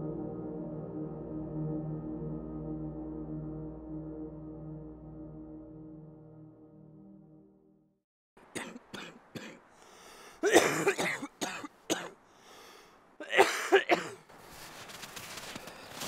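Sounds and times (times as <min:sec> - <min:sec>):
woman coughing: 0:08.6 - 0:09.6, 0:10.4 - 0:12.2, 0:13.2 - 0:14.2.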